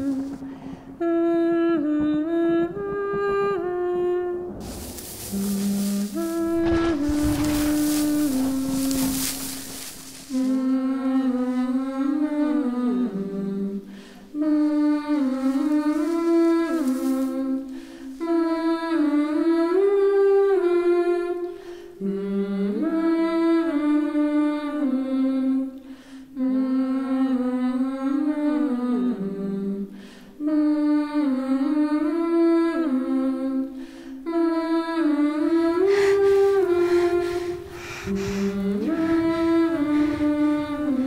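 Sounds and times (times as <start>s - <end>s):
wordless hummed vocal melody: 0.0s - 21.4s, 34.3s - 41.0s.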